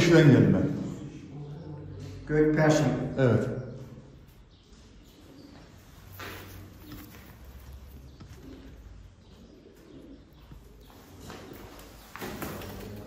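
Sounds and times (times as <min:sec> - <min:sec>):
pigeons cooing: 0:03.5 - 0:13.0.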